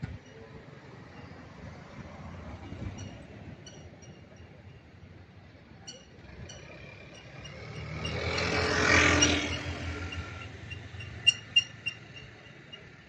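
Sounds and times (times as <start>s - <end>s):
vehicle passing by: 6.2s - 13.0s.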